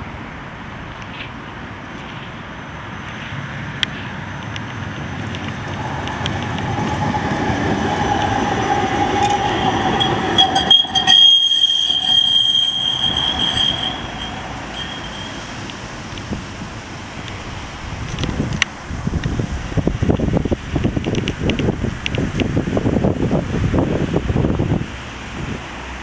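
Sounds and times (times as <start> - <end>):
tram rolling with whine: 0.0 - 26.0
high wheel squeal: 4.2 - 16.5.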